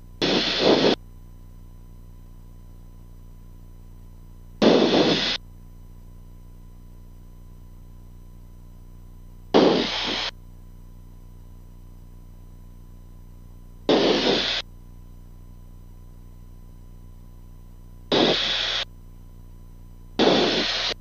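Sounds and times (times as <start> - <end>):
radio static bursts: 0.2 - 1.0, 4.6 - 5.4, 9.6 - 10.3, 13.9 - 14.6, 18.1 - 18.9, 20.2 - 21.0.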